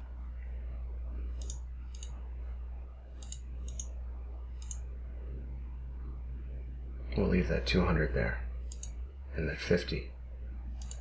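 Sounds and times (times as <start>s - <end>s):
steady low hum: 0.0s - 11.0s
computer mouse clicks: 1.4s - 2.2s, 3.2s - 3.9s, 4.6s - 4.9s, 8.7s - 9.0s, 10.8s - 11.0s.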